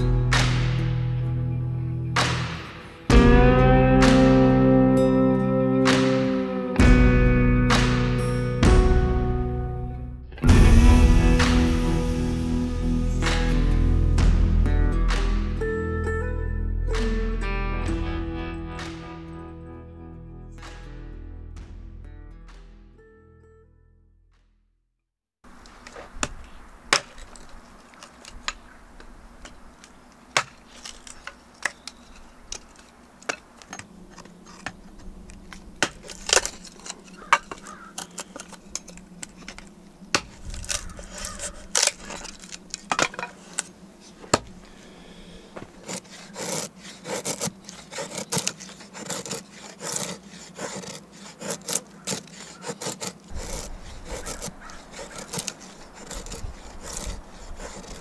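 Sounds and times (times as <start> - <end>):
hatchet chopping wood: 26.2 - 27.3, 30.3 - 31.8, 35.8 - 38.2, 45.6 - 58.0.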